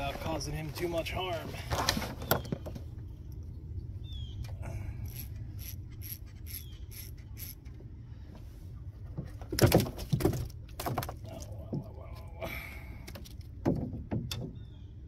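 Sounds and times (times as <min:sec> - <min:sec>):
fishing reel ratcheting: 0:05.0 - 0:07.7
knocks and rattles of handling: 0:08.9 - 0:12.1, 0:13.0 - 0:14.6.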